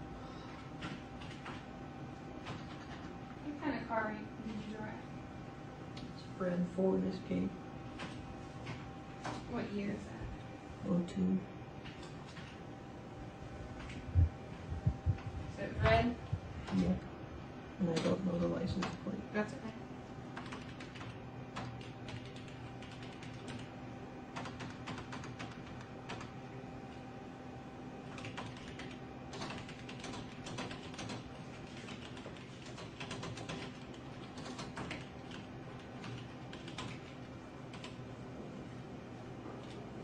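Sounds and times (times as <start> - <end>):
steady low hum: 0.0 - 40.0
keyboard typing: 0.8 - 1.7, 2.4 - 3.1, 20.3 - 23.7, 24.3 - 26.4, 28.1 - 38.0.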